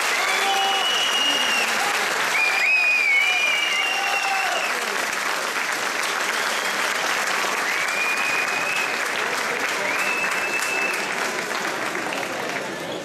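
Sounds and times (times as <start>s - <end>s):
shrill whistles from spectators: 0.0s - 4.8s, 6.1s - 9.1s, 9.7s - 11.2s
crowd applauding: 0.0s - 13.0s.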